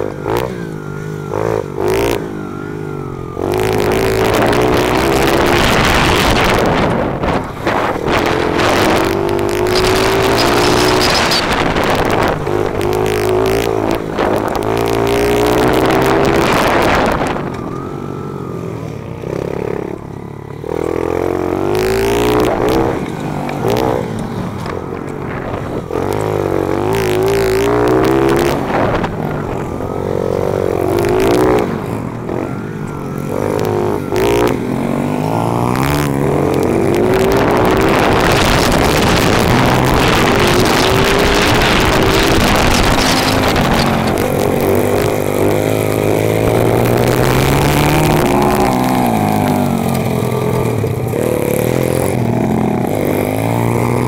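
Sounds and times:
motorbike engine revving: 0:00.0 - 0:54.0
wind rush on microphone: 0:03.7 - 0:17.6, 0:21.8 - 0:32.4, 0:35.6 - 0:53.3.

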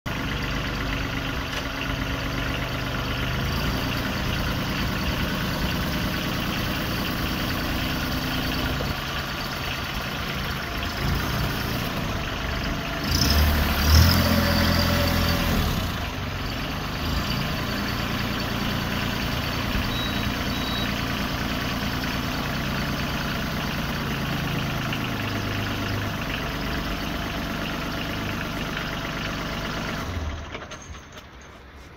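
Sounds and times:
tractor diesel engine running: 0:00.1 - 0:31.9.

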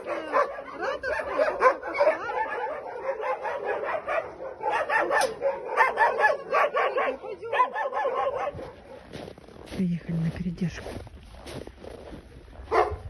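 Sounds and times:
dogs barking and yelping: 0:00.0 - 0:09.2, 0:12.7 - 0:13.0.

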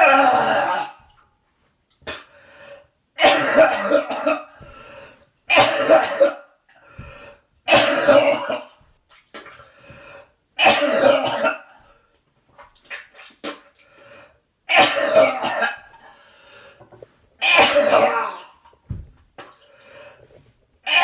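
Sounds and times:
man retching and vomiting: 0:00.0 - 0:01.2, 0:02.0 - 0:02.3, 0:03.2 - 0:04.7, 0:05.5 - 0:06.5, 0:07.7 - 0:09.7, 0:10.6 - 0:11.9, 0:14.7 - 0:16.1, 0:17.4 - 0:19.6.

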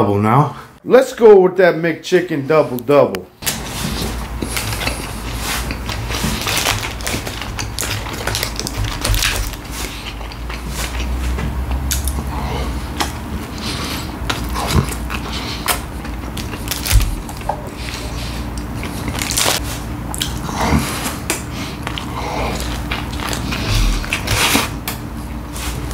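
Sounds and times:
biting and chewing sandwiches: 0:03.4 - 0:25.9
wet clicks and crunches: 0:05.7 - 0:11.1, 0:11.8 - 0:12.2, 0:14.3 - 0:17.6, 0:18.5 - 0:20.4, 0:21.2 - 0:25.0.

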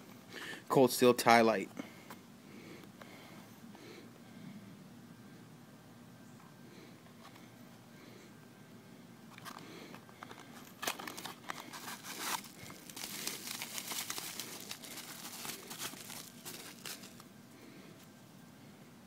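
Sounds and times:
bubble wrap crinkling: 0:10.5 - 0:17.3.

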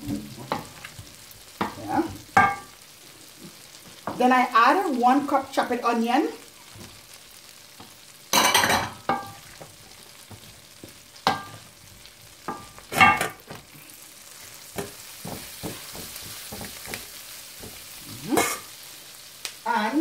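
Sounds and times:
food sizzling in a pan: 0:00.0 - 0:20.0
utensils scraping and knocking metal pans: 0:12.5 - 0:13.6, 0:18.2 - 0:18.7.

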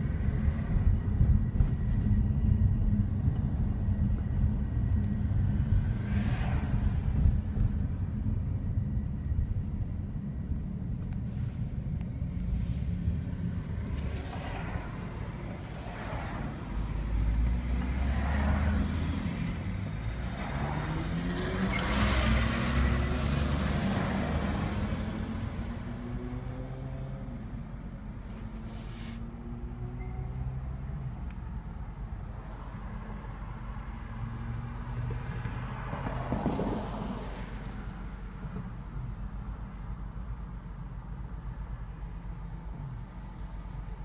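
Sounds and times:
rising train whine: 0:00.0 - 0:28.2, 0:29.4 - 0:34.2
train rumbling: 0:00.0 - 0:33.6, 0:35.0 - 0:40.1.

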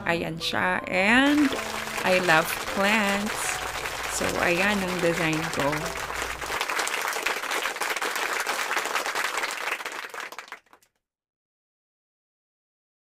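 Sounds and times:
applause: 0:01.2 - 0:10.9.

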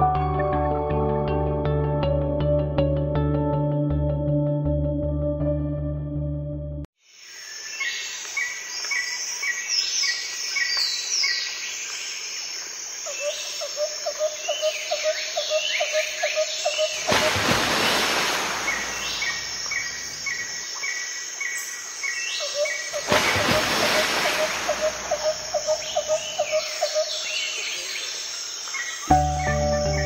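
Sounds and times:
rapid pulsed bird trill: 0:24.4 - 0:27.6.

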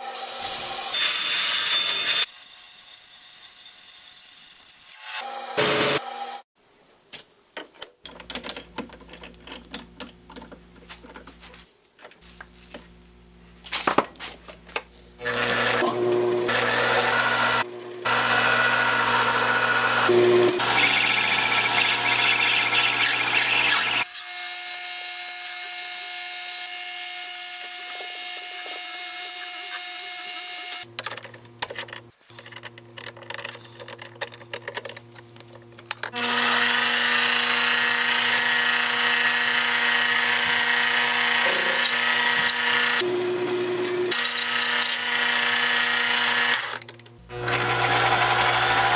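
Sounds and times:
metal lathe cutting brass: 0:15.2 - 0:24.0, 0:36.2 - 0:46.7, 0:47.3 - 0:48.9.

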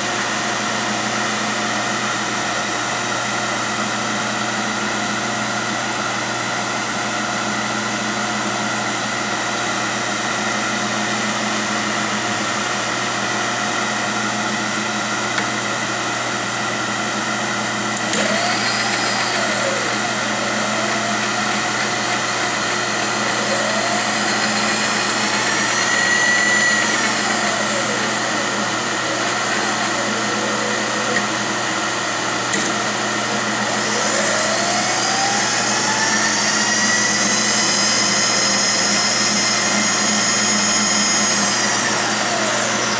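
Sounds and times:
milling machine hum and whine: 0:00.0 - 0:42.9
feed motor sweeping in pitch: 0:10.4 - 0:42.9.

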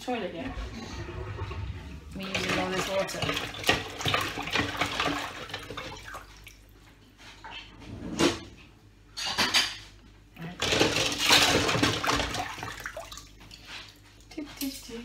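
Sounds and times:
running tap water: 0:00.1 - 0:06.7
dishes clattering: 0:09.1 - 0:09.9.

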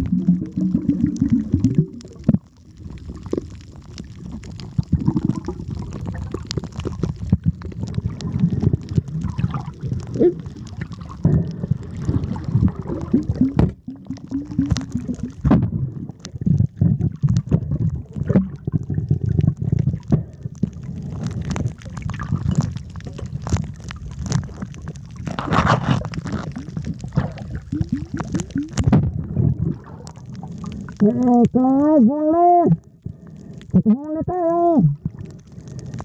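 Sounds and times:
loud bubbling burst: 0:00.0 - 0:03.5, 0:04.2 - 0:20.4, 0:24.5 - 0:31.8
underwater rumbling and bubbling: 0:00.0 - 0:36.0
underwater knocks: 0:11.1 - 0:20.3, 0:27.2 - 0:29.9.

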